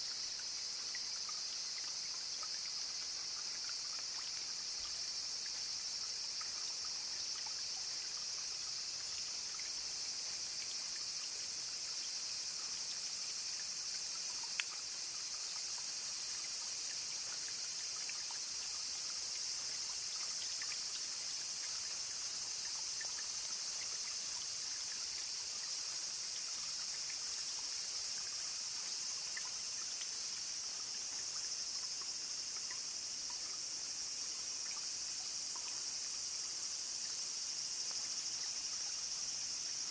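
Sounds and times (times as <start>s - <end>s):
insects chirring: 0.0s - 39.9s
trickling water: 0.0s - 39.9s
small ticks: 13.3s - 33.7s.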